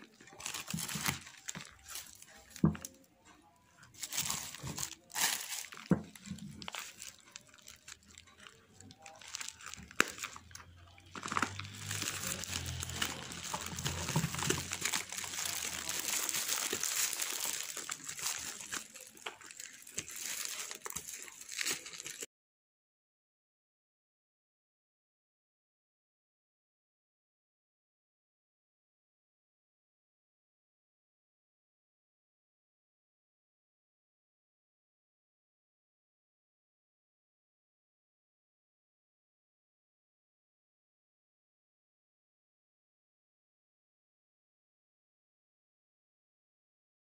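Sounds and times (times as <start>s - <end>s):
plastic packaging crinkling: 0.0s - 3.1s, 3.8s - 22.3s.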